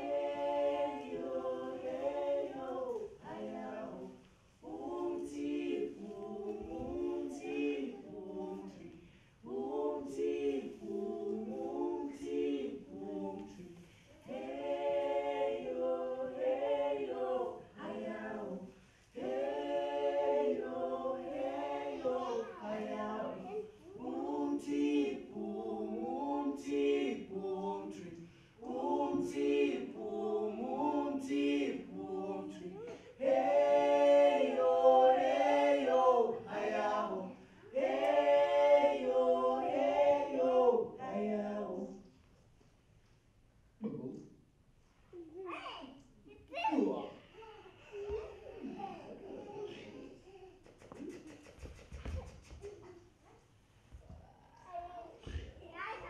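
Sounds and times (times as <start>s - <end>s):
group singing a cappella: 0.0s - 42.4s, 48.1s - 52.2s, 53.7s - 55.6s.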